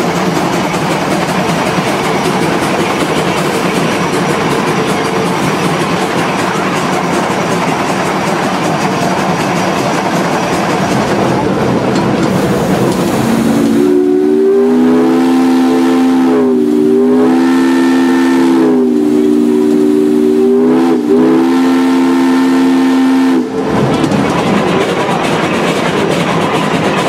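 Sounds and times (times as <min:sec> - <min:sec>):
steam locomotive running: 0:00.0 - 0:27.0
steam whistle chord: 0:13.1 - 0:23.7.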